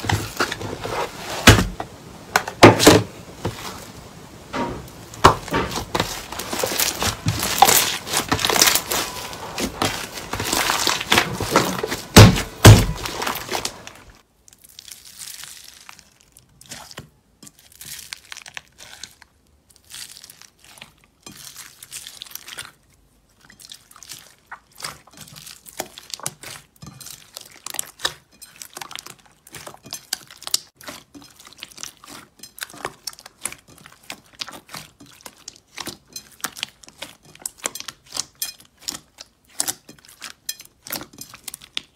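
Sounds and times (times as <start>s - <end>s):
hands kneading thick slime: 0.0s - 41.9s
foam bead slime crackling: 1.1s - 41.9s
heavy thumps: 4.5s - 13.9s.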